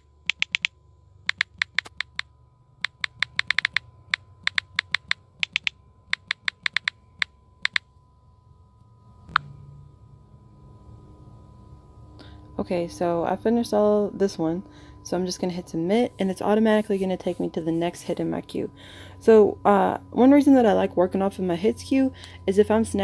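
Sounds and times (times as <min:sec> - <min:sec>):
phone keyboard tapping clicks: 0:00.0 - 0:07.8.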